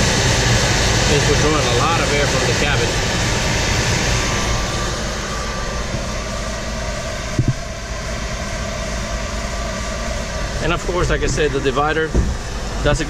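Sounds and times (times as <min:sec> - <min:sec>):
electric blower rushing air: 0:00.0 - 0:13.0
double knock: 0:12.1 - 0:12.4.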